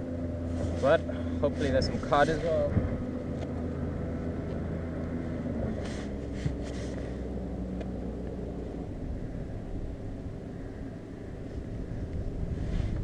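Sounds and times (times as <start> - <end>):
motorboat engine droning: 0.0 - 13.0
faint rustles: 5.2 - 8.0, 11.4 - 13.0.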